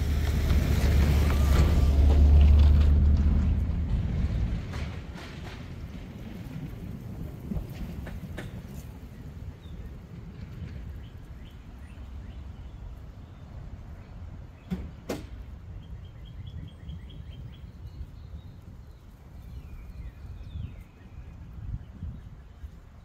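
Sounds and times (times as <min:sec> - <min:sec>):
birds chirping: 0:10.7 - 0:23.0.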